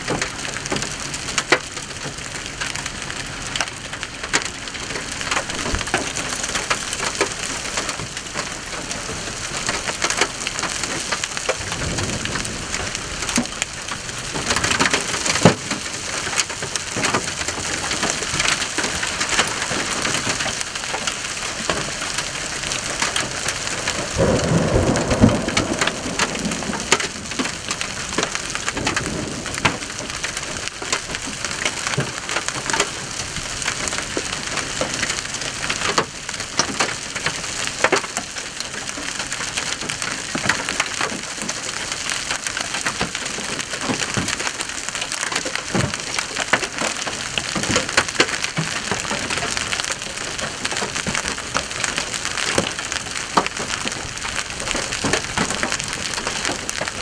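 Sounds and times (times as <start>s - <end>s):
hail clattering on asphalt and vehicles: 0.0s - 57.0s
heavy rain hissing: 0.0s - 57.0s
low rumble: 22.3s - 30.7s.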